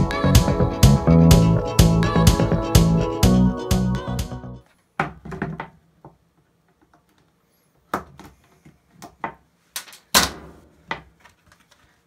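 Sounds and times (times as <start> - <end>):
background music: 0.0 - 4.6.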